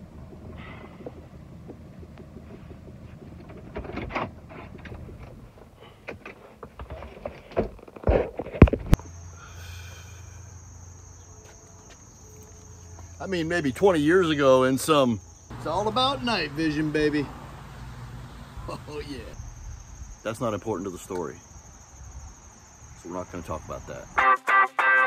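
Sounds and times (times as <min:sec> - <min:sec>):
low hum: 0:00.0 - 0:05.7
crickets chirring: 0:00.0 - 0:24.2.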